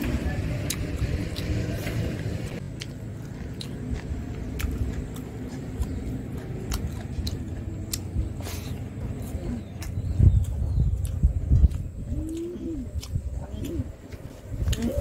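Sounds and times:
steady low rumble: 0.0 - 15.0
chewing food: 0.5 - 15.0
wet mouth clicks and smacks: 9.8 - 14.9.

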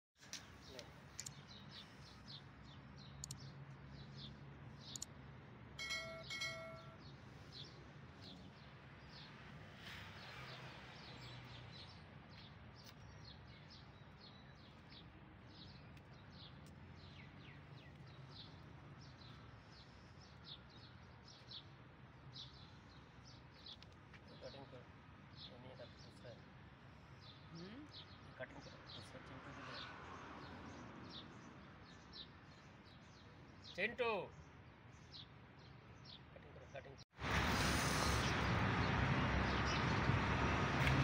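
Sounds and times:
small birds chirping: 0.2 - 40.2
short flat tones: 5.8 - 7.0.

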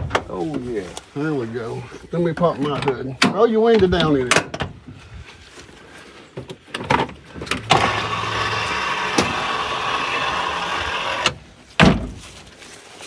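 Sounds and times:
mechanical whir: 7.6 - 11.4.

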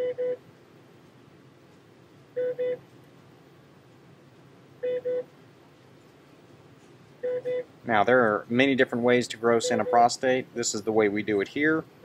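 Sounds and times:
low steady hum: 0.0 - 12.0
electronic beeper beeping: 9.6 - 10.1.

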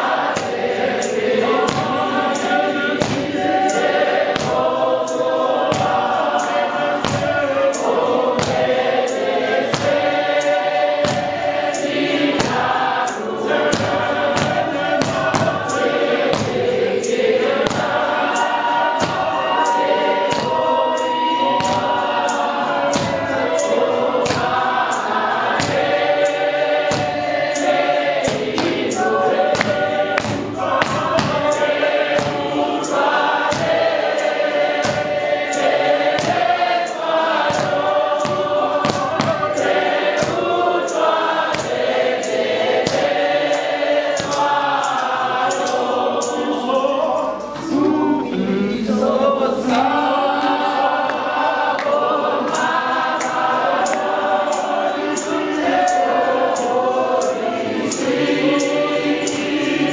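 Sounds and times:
steady struck beat: 0.0 - 46.0
congregation singing a hymn: 0.0 - 59.9.

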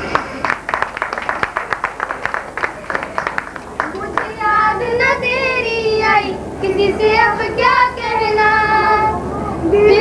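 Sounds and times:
children singing: 3.8 - 10.0.

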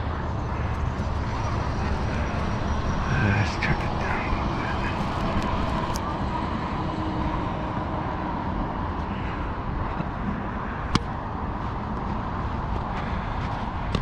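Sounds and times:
background rumble: 0.0 - 6.8.

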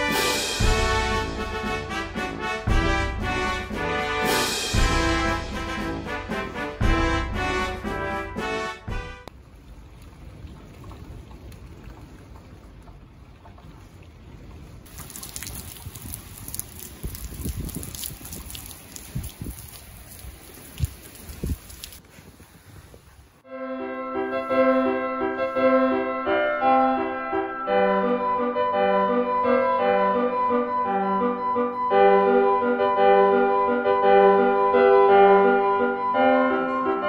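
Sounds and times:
piano music: 0.0 - 9.3, 23.5 - 37.0
wind and rain: 9.2 - 23.5.

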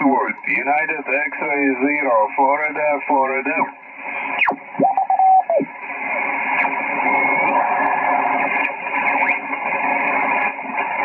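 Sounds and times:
garbled radio signals: 0.0 - 6.8
radio hiss: 0.0 - 11.0
radio carrier whistle sweeping: 4.4 - 5.7.

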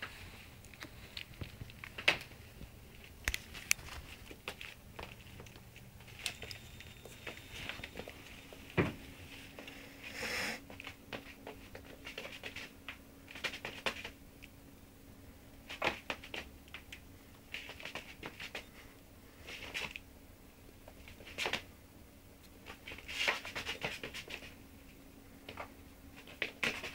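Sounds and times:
puppy paws tapping: 0.0 - 8.9.

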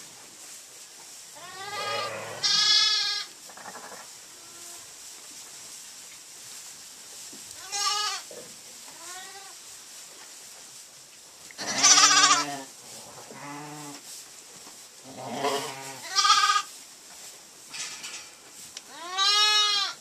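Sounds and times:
lambs bleating high: 1.4 - 4.8, 7.6 - 8.3, 11.6 - 12.7, 13.3 - 14.0, 15.1 - 16.7, 18.9 - 20.0
ewes bleating deep: 11.6 - 12.7, 15.2 - 16.7, 18.9 - 20.0.

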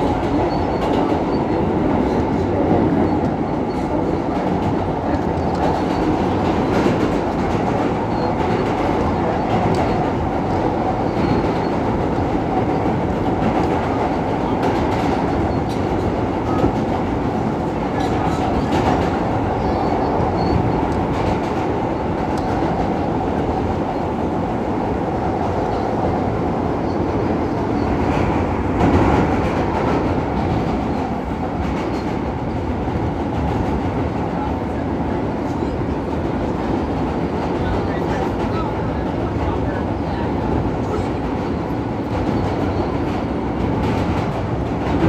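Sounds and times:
steel wheels on rail: 0.0 - 45.0.

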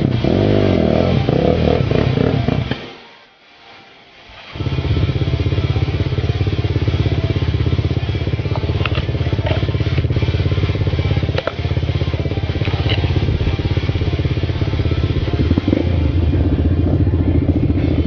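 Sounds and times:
quad engine thumping: 4.6 - 18.0
sharp clicks and knocks: 8.5 - 10.1, 11.3 - 11.6.

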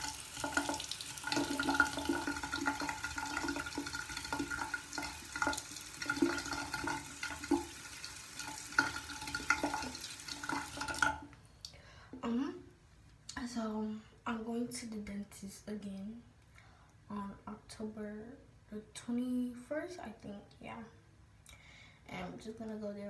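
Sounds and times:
water splashing into sink: 0.0 - 11.3.

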